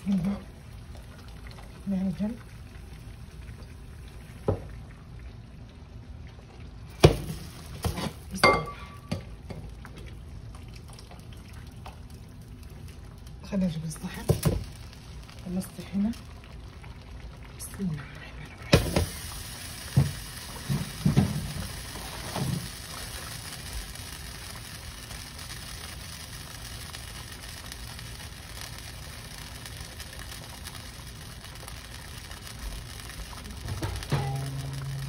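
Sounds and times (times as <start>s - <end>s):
steady hiss: 18.5s - 35.0s
plate and pot knocking: 33.8s - 34.7s.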